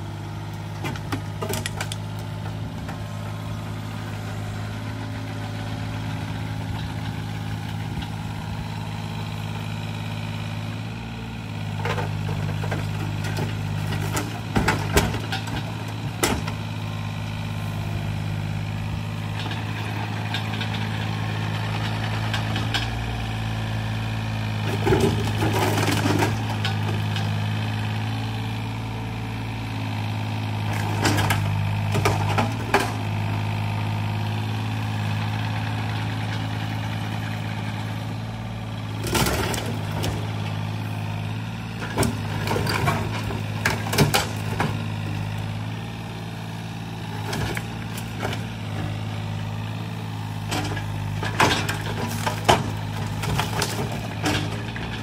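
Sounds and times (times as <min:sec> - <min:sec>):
excavator diesel engine running: 0:00.0 - 0:55.0
debris clattering into truck bed: 0:12.7 - 0:16.5, 0:24.8 - 0:26.8, 0:41.9 - 0:44.8, 0:50.5 - 0:55.0.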